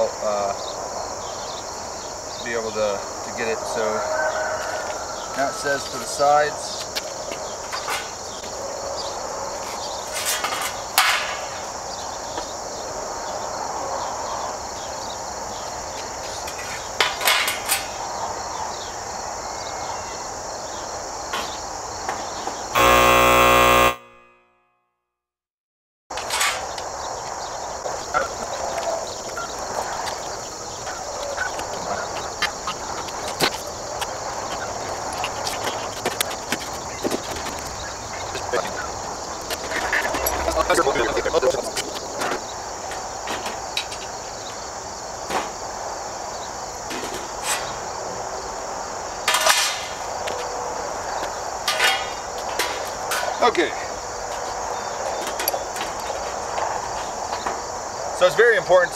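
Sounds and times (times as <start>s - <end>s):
crickets chirping: 0.0s - 24.0s, 26.1s - 58.9s
loud steady pitched tone: 22.8s - 24.9s.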